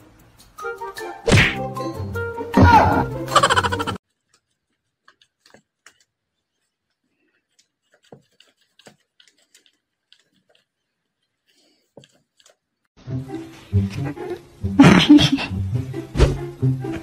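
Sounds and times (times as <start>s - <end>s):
paper rustling: 4.0s - 12.8s.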